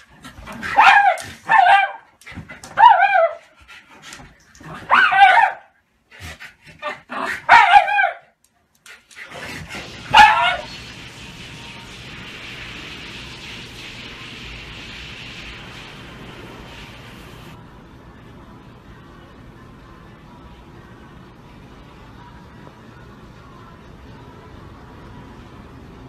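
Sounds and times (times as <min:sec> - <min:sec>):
dogs barking in play: 0:00.0 - 0:03.6, 0:04.6 - 0:05.8, 0:06.7 - 0:08.4, 0:09.3 - 0:11.2.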